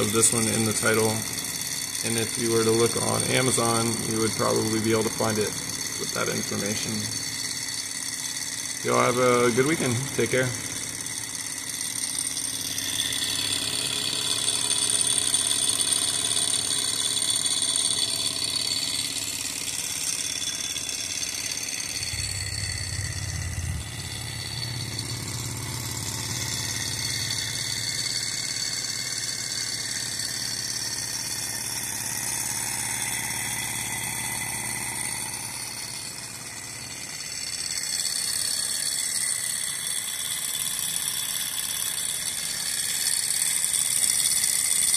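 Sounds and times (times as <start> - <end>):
engine model whirring: 0.0 - 44.9
low rumble: 22.0 - 25.6.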